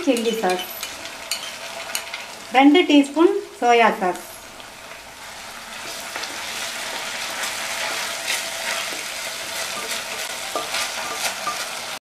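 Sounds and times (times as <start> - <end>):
vegetables sizzling in hot oil: 0.0 - 12.0
wooden spatula scraping pan: 5.8 - 11.8.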